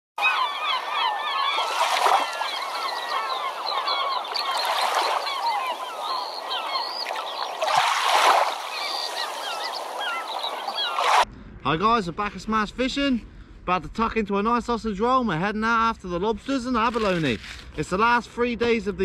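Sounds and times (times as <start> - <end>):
flock of birds squawking and chirping: 0.2 - 11.2.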